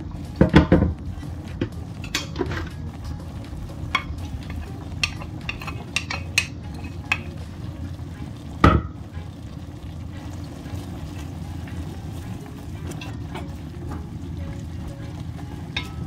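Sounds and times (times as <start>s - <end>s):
low frying sizzle: 0.0s - 16.0s
wood clicking on plate and pot: 3.9s - 7.4s.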